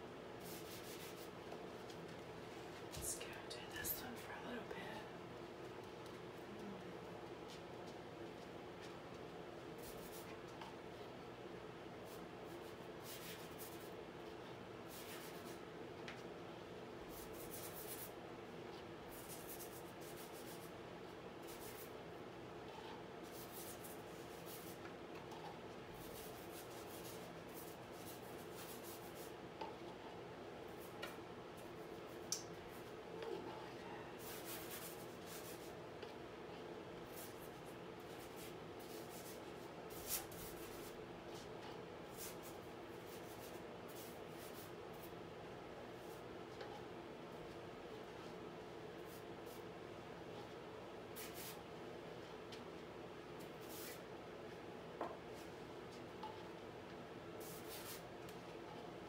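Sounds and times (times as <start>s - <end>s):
low room hum: 0.0s - 59.0s
paint tool scratching on canvas: 0.4s - 1.4s, 14.9s - 15.6s, 17.1s - 18.2s, 19.1s - 20.7s, 22.7s - 31.0s, 34.2s - 36.2s.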